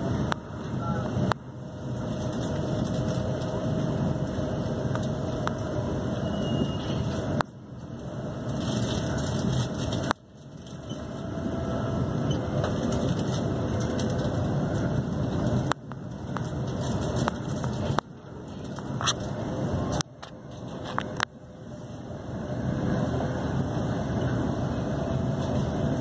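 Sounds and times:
train wheels rumbling on rail: 0.0s - 26.0s.

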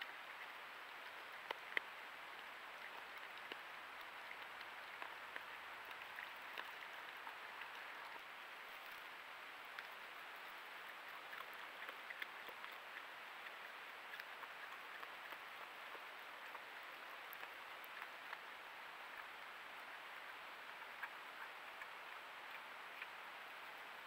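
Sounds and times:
microphone hiss: 0.0s - 24.0s
animal chewing seed: 1.1s - 19.4s.

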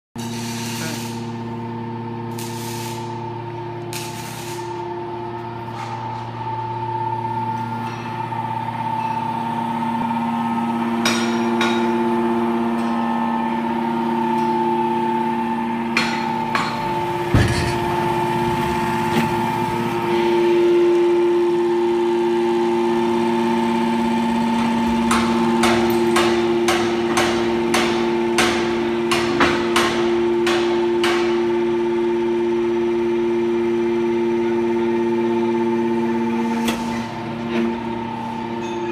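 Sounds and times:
hydraulic power unit humming: 0.2s - 38.9s
sharp knocks: 16.0s - 18.0s.

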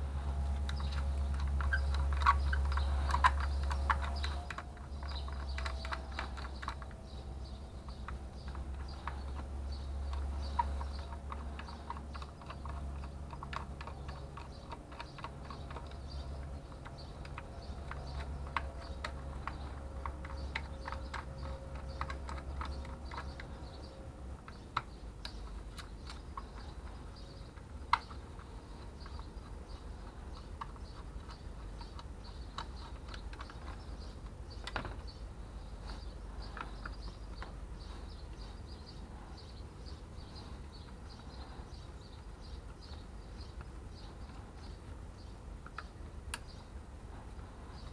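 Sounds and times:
low steady hum: 0.0s - 47.9s.

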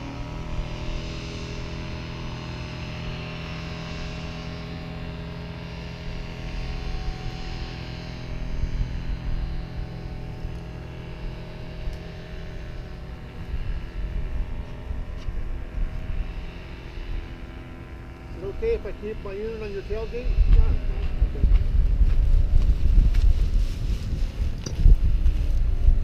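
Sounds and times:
small engine droning: 0.0s - 26.0s
wind buffeting microphone: 6.2s - 26.0s.

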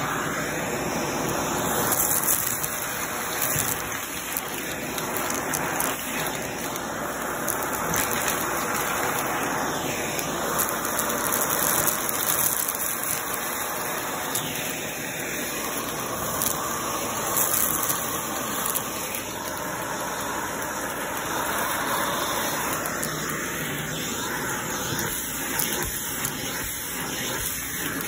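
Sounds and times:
vacuum cleaner running: 0.0s - 28.0s.

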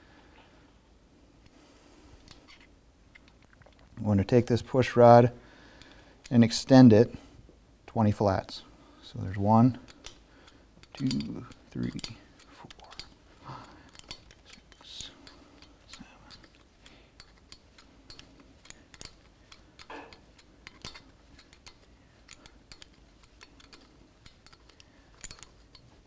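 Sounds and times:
wrench clicking on metal: 9.2s - 26.0s.

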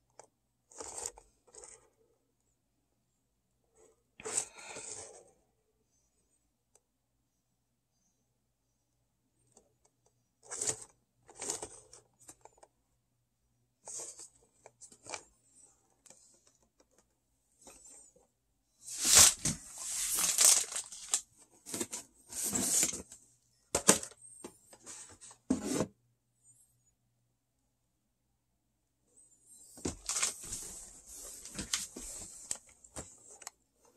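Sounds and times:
cardboard box packaging rustling: 18.9s - 23.0s, 29.9s - 32.6s.

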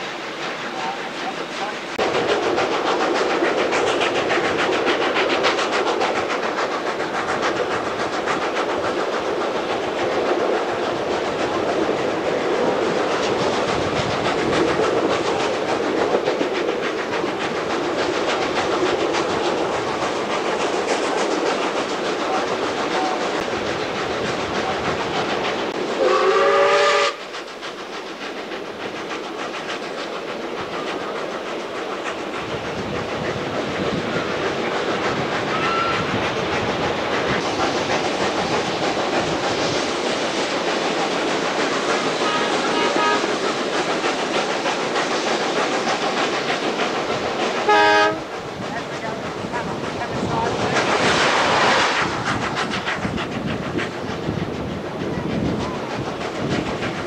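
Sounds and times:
train wheels clickety-clack: 0.0s - 57.0s
steam locomotive whistle: 26.0s - 27.3s, 35.5s - 36.2s, 42.2s - 43.4s, 47.6s - 48.3s.

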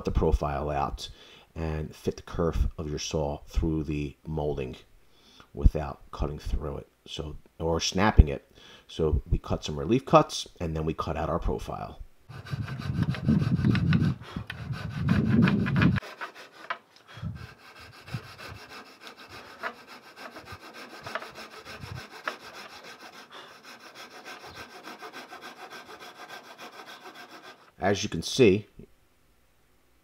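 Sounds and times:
coping saw cutting wood: 12.3s - 27.8s.

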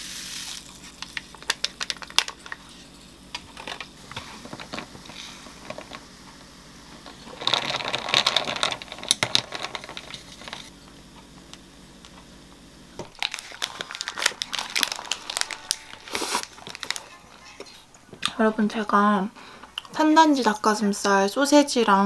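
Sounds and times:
paper sandwich wrapper crinkling: 0.6s - 2.7s, 13.1s - 17.6s.

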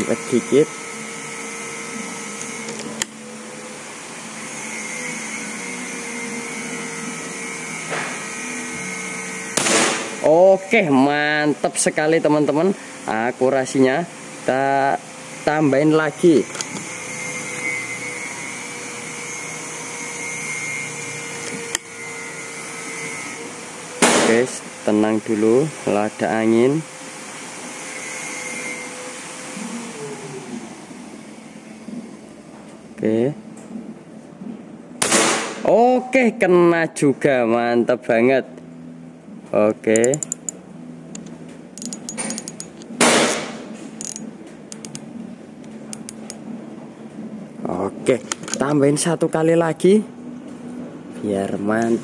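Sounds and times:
air rifle shot: 9.6s - 10.2s, 24.0s - 24.4s, 35.0s - 35.6s, 43.0s - 43.6s
sharp click: 39.9s - 45.0s, 45.6s - 46.4s.

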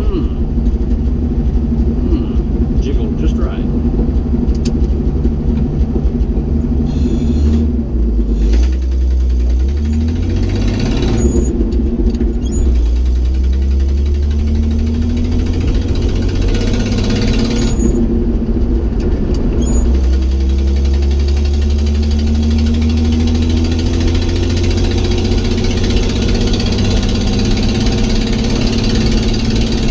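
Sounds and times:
pickup engine accelerating: 0.0s - 29.9s
gear shift click: 0.4s - 7.7s.

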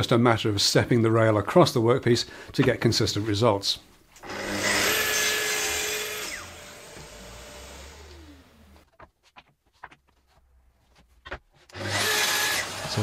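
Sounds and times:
circular saw cutting and spinning down: 4.3s - 8.5s, 11.8s - 13.0s.

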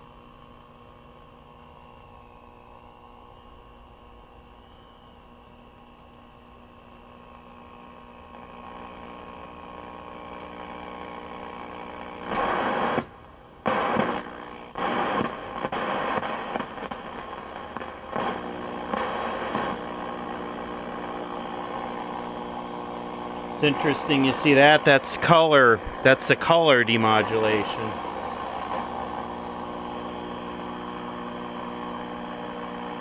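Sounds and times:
television speaker hiss and hum: 0.3s - 33.0s
loud radio static: 7.6s - 33.0s
tuning knob clicks: 10.3s - 10.6s, 15.2s - 19.9s.

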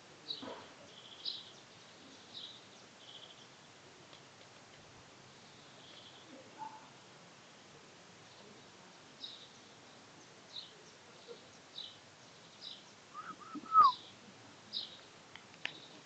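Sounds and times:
faint outdoor background noise: 0.0s - 16.0s
small songbirds chirping: 0.2s - 3.9s, 5.1s - 7.5s, 8.1s - 16.0s
mid-pitched bird notes: 9.2s - 15.0s.

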